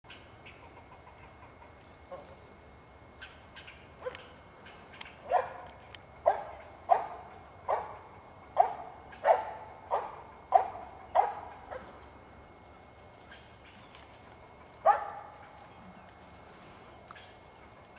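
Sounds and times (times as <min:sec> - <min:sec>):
dog barking: 0:05.2 - 0:08.0, 0:08.6 - 0:11.9, 0:14.8 - 0:15.4.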